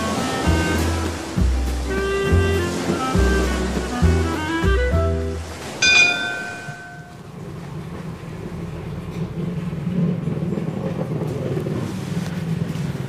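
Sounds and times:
music: 0.0s - 5.8s
steady low rumble: 3.4s - 13.0s
bell-like chime: 5.8s - 7.2s.

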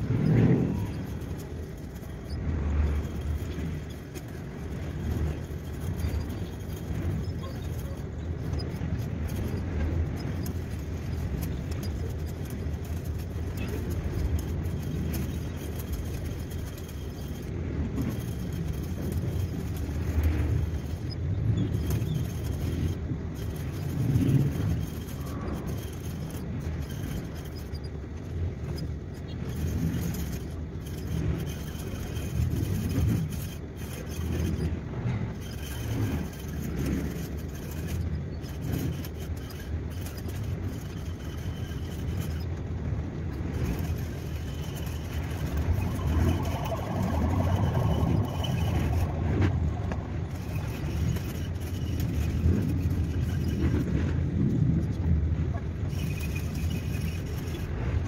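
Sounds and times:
fishing reel whirring: 43.3s - 54.0s.

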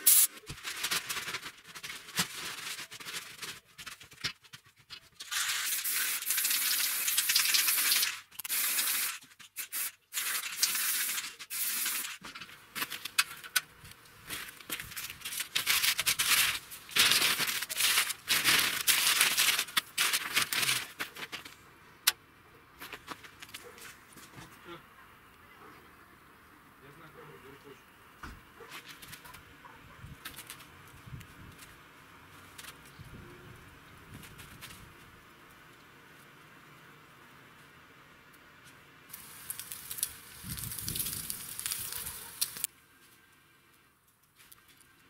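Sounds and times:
spray paint can hissing: 0.0s - 0.5s, 5.2s - 12.2s, 39.1s - 42.7s.

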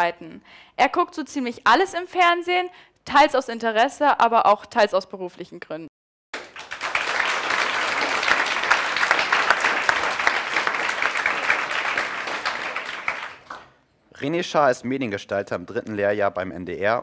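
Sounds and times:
audience applauding: 6.4s - 13.8s.

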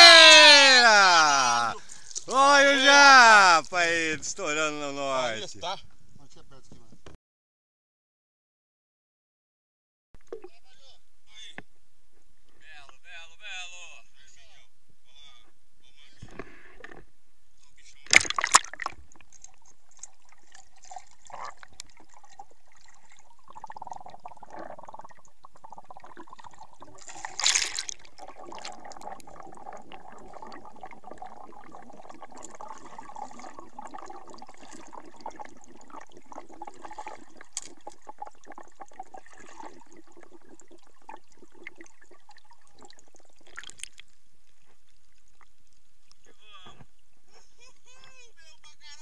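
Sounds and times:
muffled underwater gurgling: 0.0s - 5.5s, 28.1s - 43.5s
water splash: 18.1s - 23.2s, 26.1s - 30.8s, 31.8s - 45.5s.

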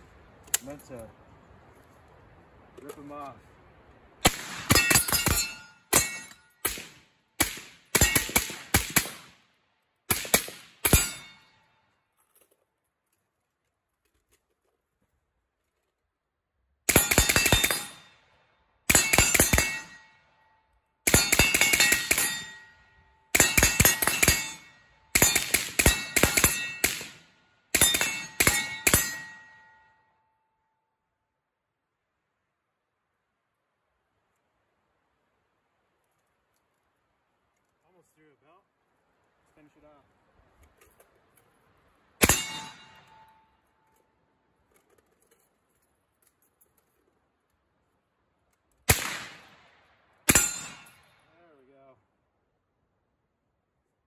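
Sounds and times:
steel targets ringing: 4.6s - 7.0s, 10.8s - 11.8s, 16.9s - 18.3s, 18.9s - 30.2s, 42.2s - 43.7s, 50.3s - 51.2s
suppressed rifle shots: 48.9s - 49.6s.

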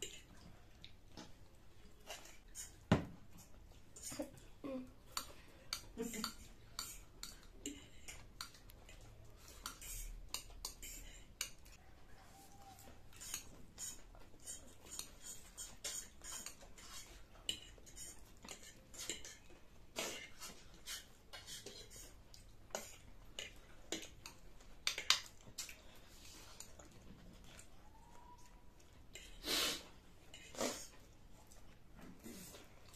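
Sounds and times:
forks scraping against plates: 13.1s - 22.1s
noodle slurping: 29.2s - 31.1s.

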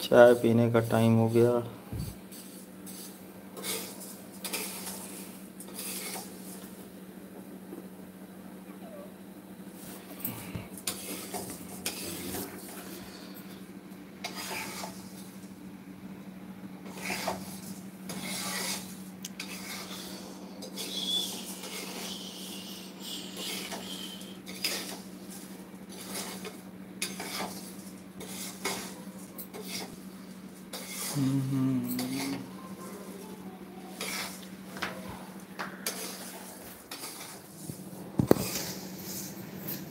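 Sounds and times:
steady low hum: 0.0s - 39.9s
steel spoon scraping a pan: 2.3s - 6.6s, 10.8s - 12.9s, 14.2s - 15.2s, 16.8s - 30.0s, 30.6s - 31.2s, 33.9s - 34.4s, 35.8s - 37.5s.

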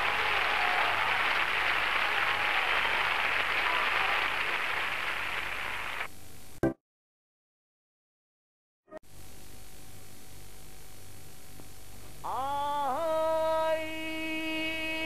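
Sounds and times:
crowd applauding: 0.0s - 6.1s.

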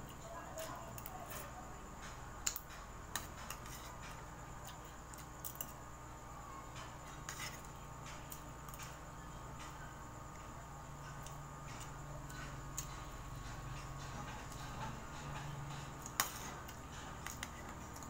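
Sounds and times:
faint steady hum: 0.0s - 18.0s
metal spoon clicking on plates: 2.4s - 3.8s.

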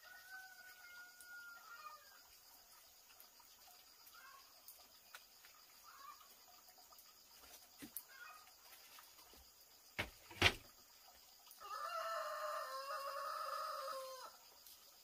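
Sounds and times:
rooster crowing: 0.0s - 2.2s, 11.6s - 14.4s.

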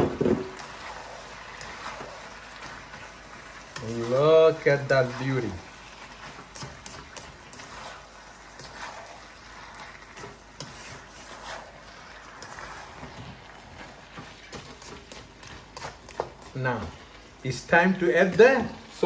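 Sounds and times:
food sizzling in a wok: 0.0s - 19.0s
plastic spatula scraping pan: 3.8s - 16.6s.

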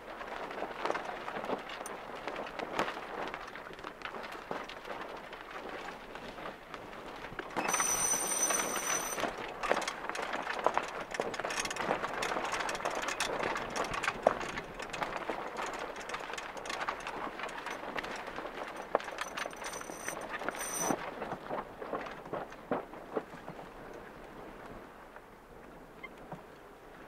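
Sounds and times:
wind: 0.0s - 27.0s
water noise: 7.0s - 21.0s
irregular clicks and knocks: 7.5s - 21.0s
thin high-pitched tone: 7.6s - 9.2s.

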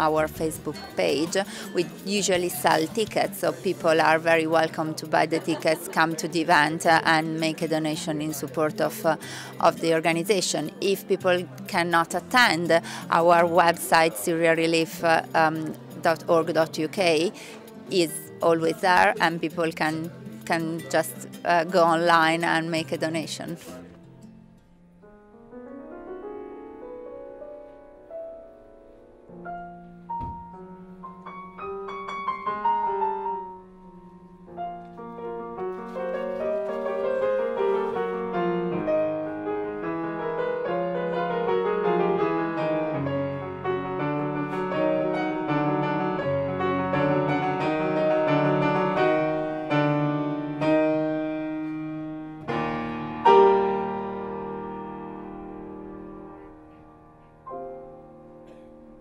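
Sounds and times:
solo piano playing: 24.1s - 59.0s.

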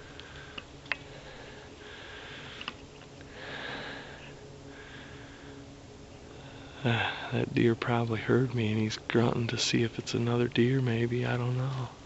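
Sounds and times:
faint clicks: 2.6s - 3.3s.

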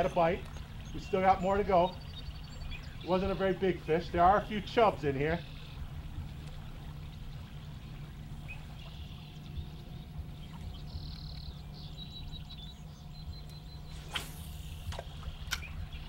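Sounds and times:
bird chirping: 0.0s - 6.0s, 7.0s - 16.0s
faint running water: 0.0s - 13.8s
low rumble: 5.0s - 16.0s.

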